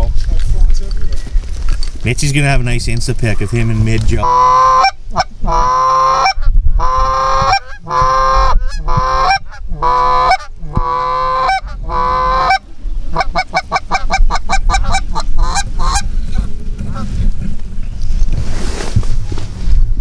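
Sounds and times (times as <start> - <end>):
goose honking: 3.2 - 17.1.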